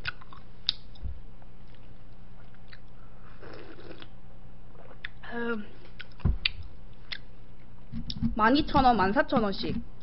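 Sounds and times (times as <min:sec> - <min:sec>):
slurping sip from a bowl: 0:03.3 - 0:04.1.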